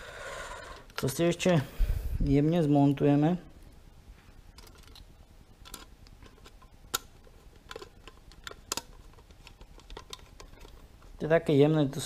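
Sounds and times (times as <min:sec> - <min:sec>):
screwdriver clicking on plastic parts: 0:04.6 - 0:10.8.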